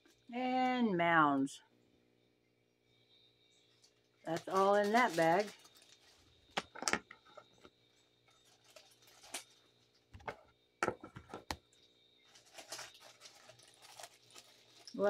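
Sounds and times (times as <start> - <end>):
soft rustle: 12.2 - 15.0.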